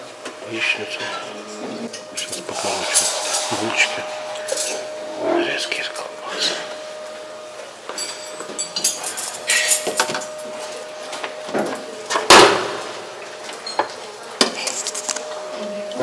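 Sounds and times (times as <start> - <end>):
faint steady hum: 0.0 - 16.0
dishes and cutlery clinking: 1.9 - 5.9, 7.9 - 10.7.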